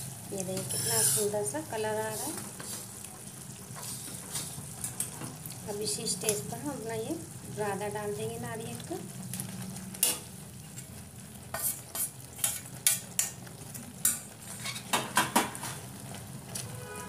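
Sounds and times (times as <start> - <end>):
bubbling sugar syrup: 0.0 - 17.0
metal spatula scraping a pan: 0.5 - 2.9, 3.7 - 5.4, 10.0 - 10.9, 11.5 - 13.4, 14.0 - 15.0, 16.6 - 17.0.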